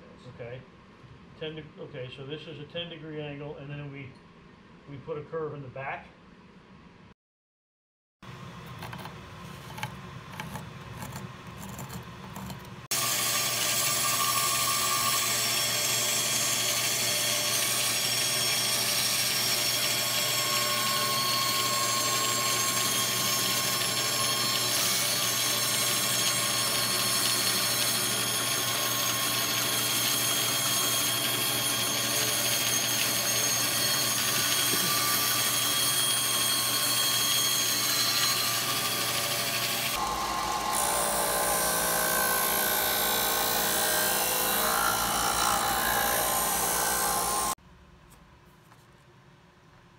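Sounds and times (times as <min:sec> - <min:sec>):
power tool whining: 0:10.4 - 0:47.6.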